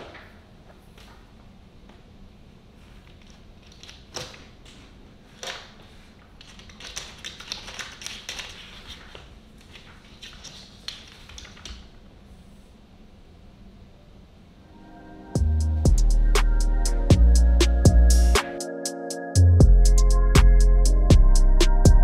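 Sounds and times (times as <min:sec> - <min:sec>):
cat paws clicking on hard floor: 0:06.4 - 0:11.9.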